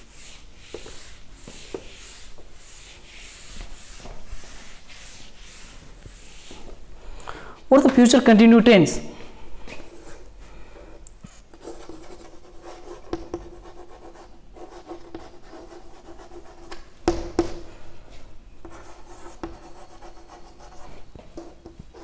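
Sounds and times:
chalk scratching on chalkboard: 0:00.0 - 0:06.7, 0:11.6 - 0:16.9, 0:18.6 - 0:22.0
chalk tapping on board: 0:00.6 - 0:02.3, 0:11.7 - 0:14.2, 0:14.8 - 0:17.6, 0:18.6 - 0:20.6.

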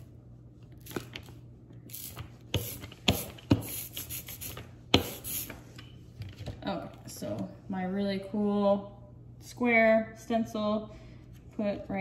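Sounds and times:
ink roller sticky hiss: 0:01.9 - 0:05.6.

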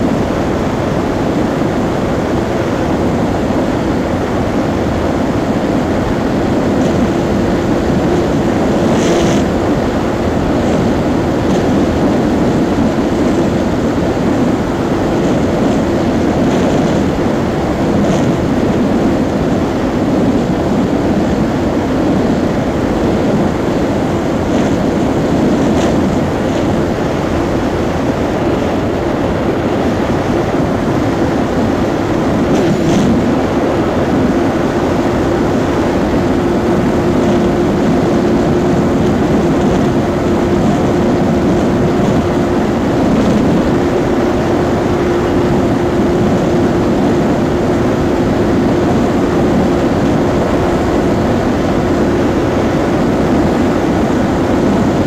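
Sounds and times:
motorcycle engine running flat out: 0:00.0 - 0:55.0
wind rush on microphone: 0:00.0 - 0:55.0.

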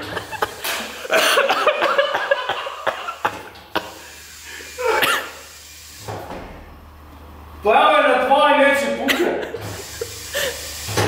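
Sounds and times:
person laughing: 0:00.0 - 0:04.1, 0:09.0 - 0:10.7
person coughing: 0:01.1 - 0:04.0, 0:04.8 - 0:05.5, 0:09.0 - 0:09.5.

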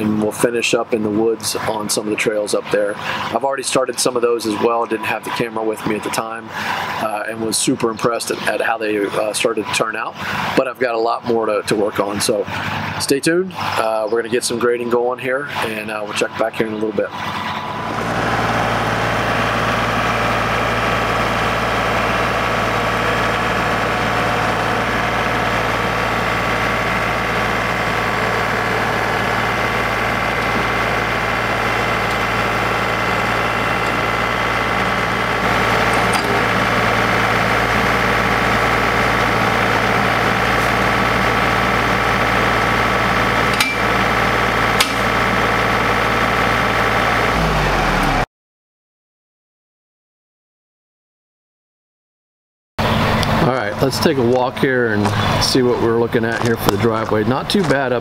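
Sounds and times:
diesel tractor engine running: 0:00.0 - 0:48.2, 0:52.8 - 0:58.0
sharp metal knocks: 0:43.5 - 0:43.9, 0:44.8 - 0:45.1.

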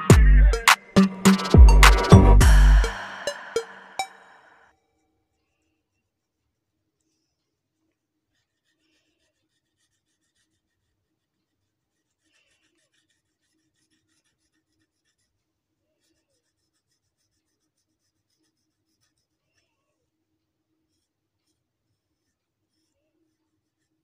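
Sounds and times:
marker scratching on paper: 0:08.3 - 0:11.3, 0:11.9 - 0:15.4, 0:16.0 - 0:19.8, 0:20.9 - 0:24.0.

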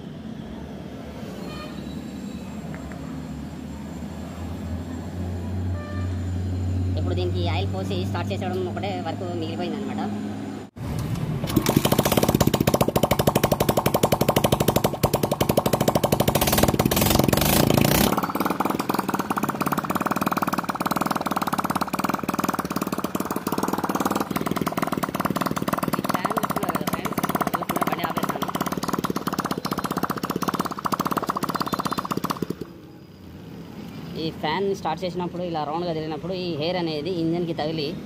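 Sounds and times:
single-cylinder engine running: 0:10.8 - 0:33.7.

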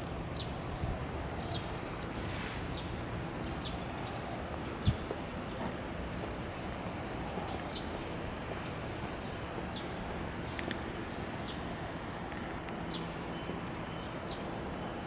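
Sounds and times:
street background hum: 0:00.0 - 0:15.0.

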